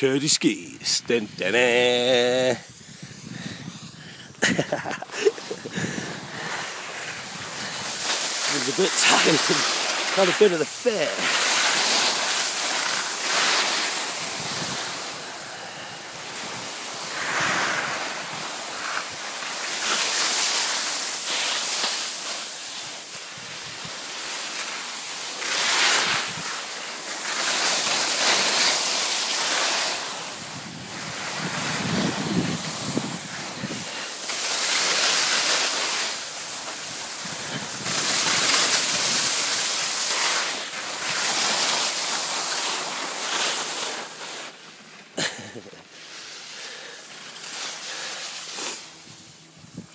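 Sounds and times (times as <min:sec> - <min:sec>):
skis carving on snow: 0:00.1 - 0:49.9
wind buffeting microphone: 0:02.6 - 0:08.1, 0:14.2 - 0:15.0, 0:30.4 - 0:33.9.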